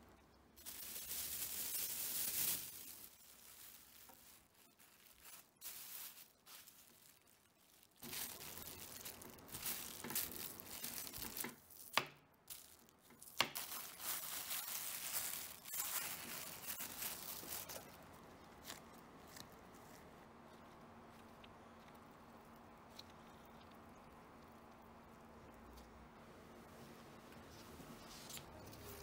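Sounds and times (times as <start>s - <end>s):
plastic bag crinkling: 0.6s - 19.5s.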